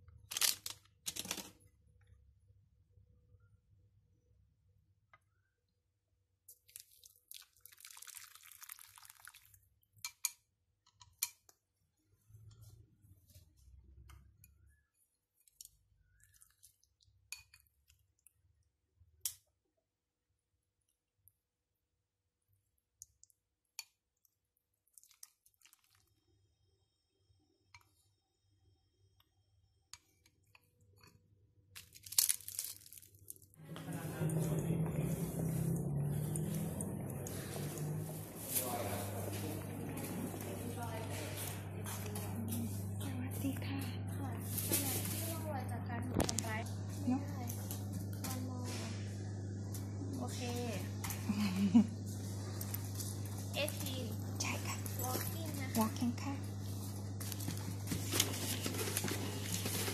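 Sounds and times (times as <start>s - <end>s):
dried seaweed crinkling: 0.2s - 1.5s, 6.6s - 9.5s, 31.8s - 34.1s
hot water pouring into bowl: 6.6s - 9.8s
chopsticks clicking on bowls: 10.0s - 11.6s.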